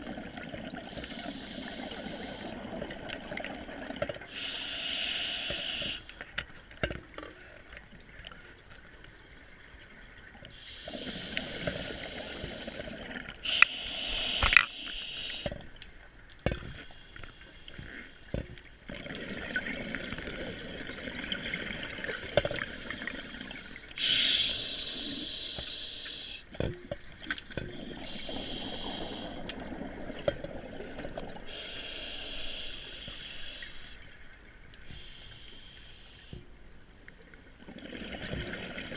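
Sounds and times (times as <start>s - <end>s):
regulator hissing inhalations: 0.9s - 2.6s, 4.3s - 6.1s, 10.6s - 12.7s, 13.4s - 15.5s, 24.0s - 26.5s, 28.0s - 29.5s, 31.5s - 34.0s, 34.8s - 36.4s.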